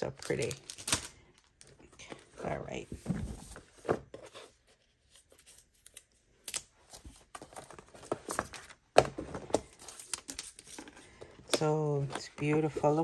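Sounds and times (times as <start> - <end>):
packaging rustling and crinkling: 0.0 - 4.1.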